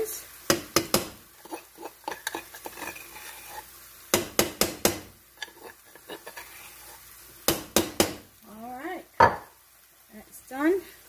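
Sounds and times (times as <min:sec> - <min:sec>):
food sizzling in frying pan: 0:00.0 - 0:11.0
utensil tapping cookware: 0:00.5 - 0:03.0.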